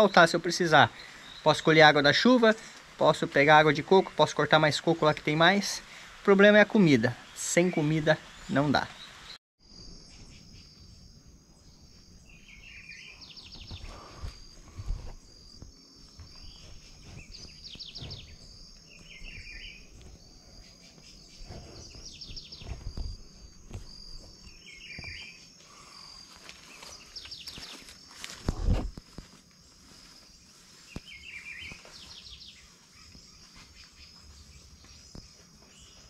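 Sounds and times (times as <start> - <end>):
birds calling: 0.0 - 9.4, 11.6 - 28.4, 29.8 - 36.0
high insect chirr: 0.0 - 36.0
low thumps: 13.5 - 25.2.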